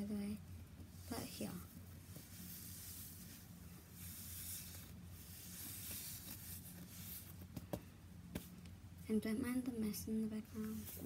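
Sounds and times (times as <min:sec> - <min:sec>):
steady low hum: 0:00.0 - 0:11.0
squishy toy rubbing and hissing: 0:00.9 - 0:07.4.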